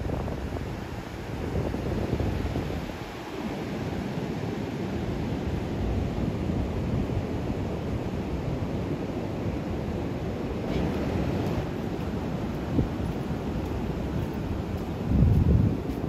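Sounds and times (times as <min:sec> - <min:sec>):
wind rumbling on microphone: 0:00.0 - 0:16.0
surf breaking on beach: 0:10.2 - 0:14.2.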